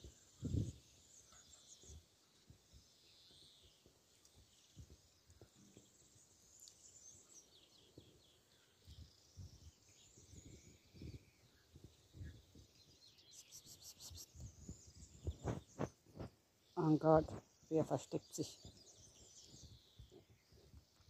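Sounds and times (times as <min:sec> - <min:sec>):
faint birds chirping: 0:00.0 - 0:21.0
high bird trill: 0:13.3 - 0:15.6.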